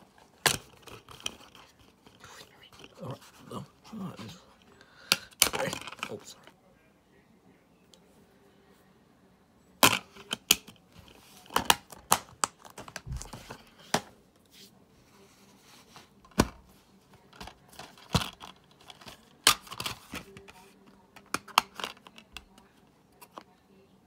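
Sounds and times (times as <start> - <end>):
plastic cases clicking and snapping: 0.4 - 1.6, 5.1 - 6.2, 11.4 - 14.1, 17.3 - 20.5, 21.2 - 22.5.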